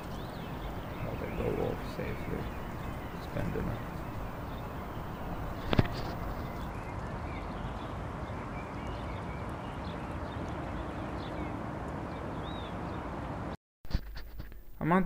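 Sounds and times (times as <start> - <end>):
low microphone noise: 0.0 - 7.9
faint bird chirps: 0.0 - 11.5.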